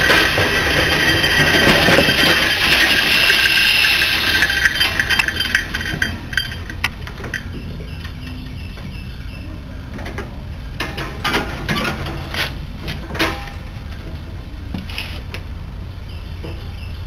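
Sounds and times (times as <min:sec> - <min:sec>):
sharp clacking noises: 0:00.0 - 0:09.0
compressed-air engine rumbling: 0:00.0 - 0:16.1.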